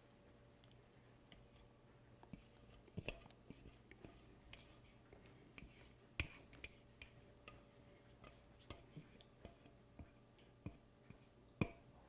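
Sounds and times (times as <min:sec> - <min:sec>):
spatula tapping baking dish: 0:05.6 - 0:11.9.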